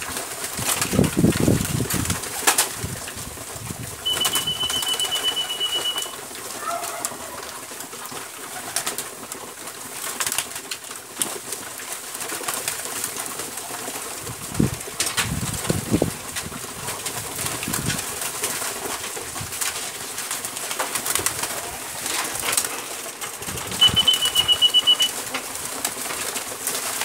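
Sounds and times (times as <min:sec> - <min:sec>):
wings flapping: 0:00.0 - 0:27.0
thin high whistle: 0:04.0 - 0:06.2, 0:23.8 - 0:25.1.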